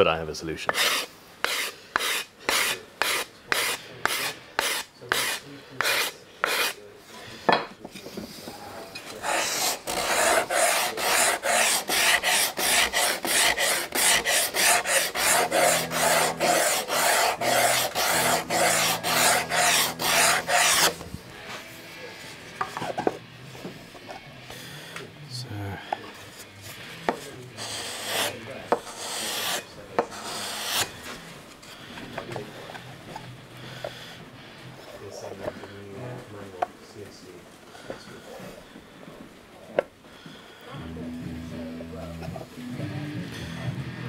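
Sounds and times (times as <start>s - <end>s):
hand sanding wood: 0.7s - 6.8s, 9.2s - 21.0s, 27.6s - 31.0s.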